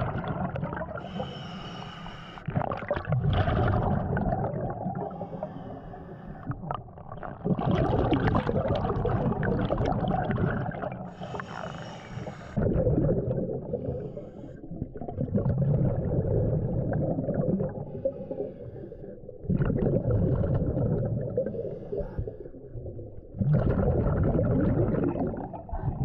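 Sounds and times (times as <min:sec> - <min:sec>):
bubbling exhales: 0:00.0 - 0:26.0
regulator hissing inhale: 0:01.0 - 0:02.5, 0:05.1 - 0:06.5, 0:11.1 - 0:12.6, 0:13.8 - 0:14.7, 0:18.0 - 0:19.2, 0:21.5 - 0:22.5.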